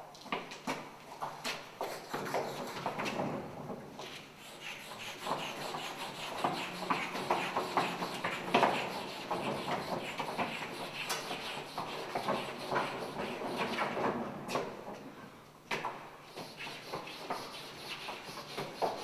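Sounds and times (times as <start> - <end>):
chalk scratching on blackboard: 1.8 - 3.0, 4.0 - 14.0, 16.3 - 19.0.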